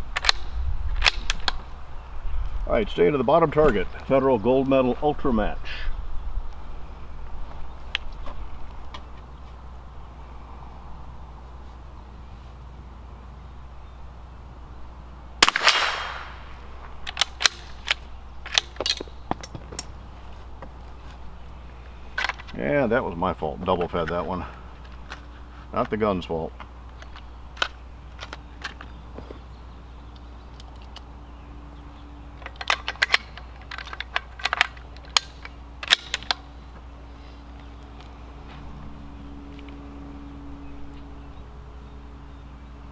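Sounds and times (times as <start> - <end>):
rifle bolt metallic clicks: 0.1 - 1.6, 17.0 - 19.9, 32.4 - 36.5
rifle shot with echo: 15.4 - 16.6
rifle bolt clicks and clacks: 32.4 - 36.5.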